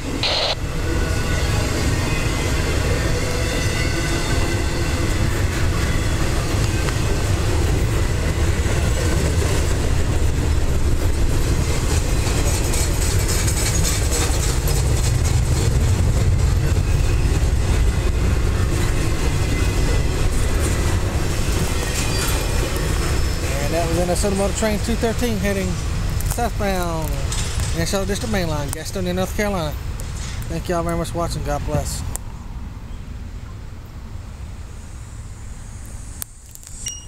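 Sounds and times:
train wheels rumbling on rail: 0.0 - 32.6
wheels clacking over rail joints: 3.1 - 31.6.

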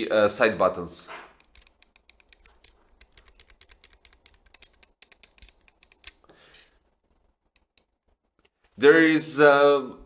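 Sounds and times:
mouse buttons clicking: 1.4 - 6.2, 7.6 - 8.0.

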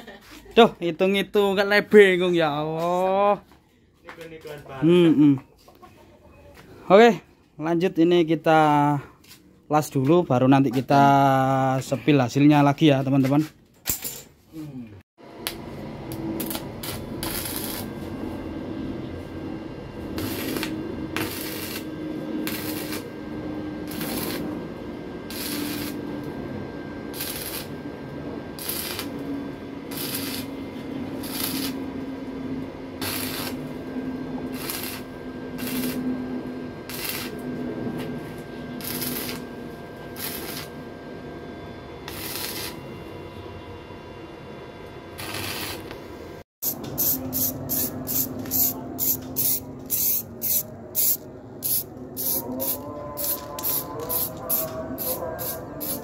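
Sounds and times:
welding arc crackling: 15.4 - 18.1, 20.1 - 23.2, 23.8 - 24.6, 25.2 - 26.2, 27.1 - 27.8, 28.6 - 31.9, 33.0 - 33.8, 34.5 - 36.1, 36.8 - 37.4, 38.8 - 39.5, 40.1 - 40.7, 42.1 - 42.8, 45.2 - 46.0, 46.6 - 56.0.

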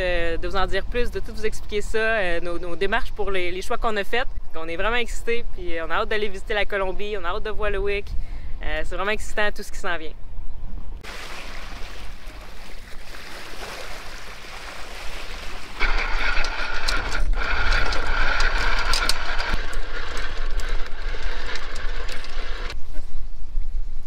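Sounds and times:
windlass motor whine: 14.8 - 23.4.

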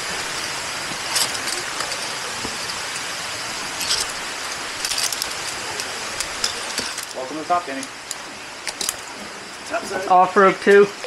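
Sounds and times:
steady rushing hiss: 0.0 - 11.0
metal gear clinking on rope: 0.2 - 3.1, 3.7 - 9.1.

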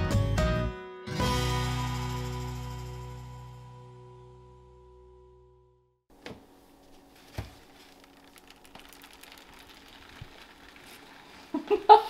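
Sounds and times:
handling noise on counter: 6.8 - 11.5
small clicks: 7.9 - 11.6
people laughing: 11.5 - 12.0.

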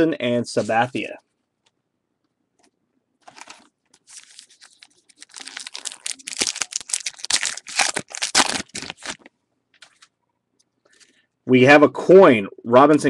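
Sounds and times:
rustling: 3.2 - 10.1
wrapper tearing and crinkling: 3.3 - 10.1.

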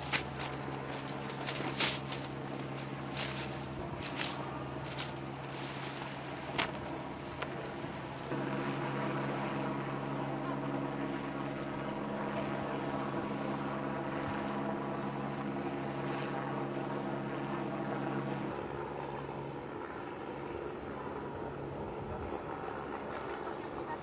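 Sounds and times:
rough noisy background: 0.0 - 8.4
engine drone with low tones: 0.0 - 15.9.

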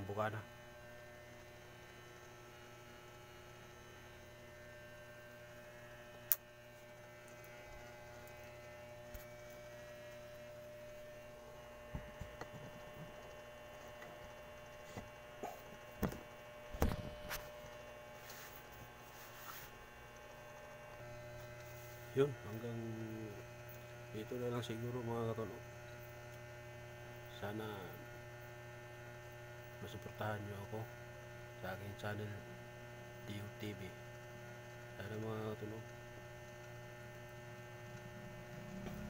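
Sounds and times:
electrical hum: 0.0 - 39.0
sharp click: 6.3 - 6.5.

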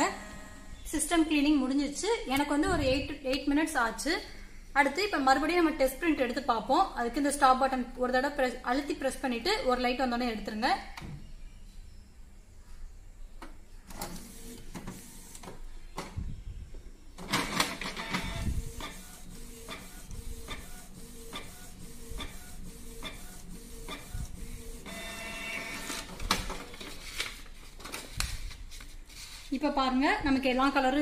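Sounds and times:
printer hum: 13.9 - 15.6, 17.5 - 27.0.

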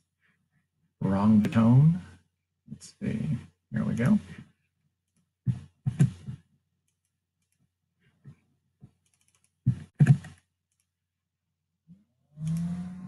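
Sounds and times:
keyboard and mouse clicks: 5.9 - 7.7, 8.9 - 10.9, 12.4 - 12.8.

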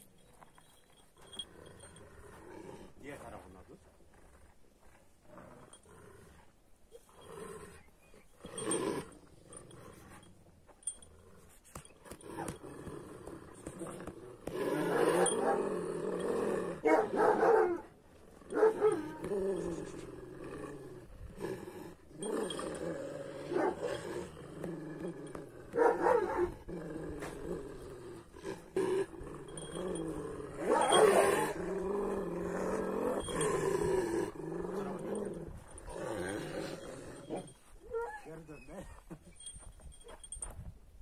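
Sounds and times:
dogs growling: 0.6 - 39.5
dogs snarling: 8.4 - 37.6.

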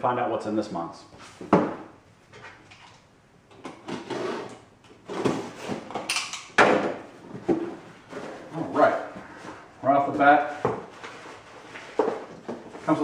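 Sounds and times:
cardboard and tape rustling: 7.2 - 13.0.

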